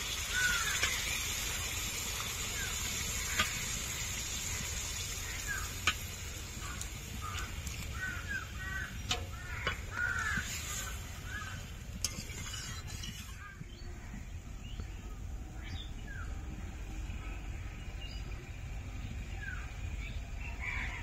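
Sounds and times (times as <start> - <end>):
crows cawing: 0.2 - 1.0, 4.4 - 11.7, 20.6 - 21.0.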